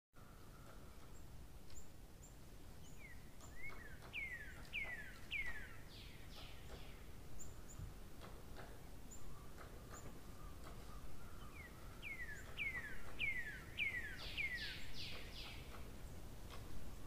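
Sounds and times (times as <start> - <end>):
low background noise: 0.2 - 17.0
high bird chirps: 2.9 - 7.8, 9.1 - 15.8.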